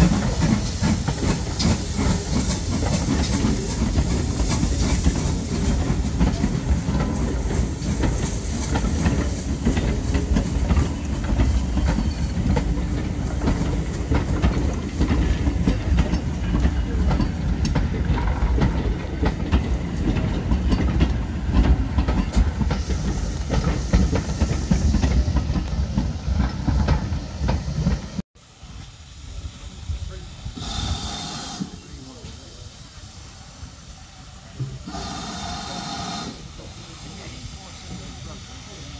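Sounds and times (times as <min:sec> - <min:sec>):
wheels clicking over rail joints: 0:00.0 - 0:28.2
train wheels rumbling on rails: 0:00.0 - 0:38.9.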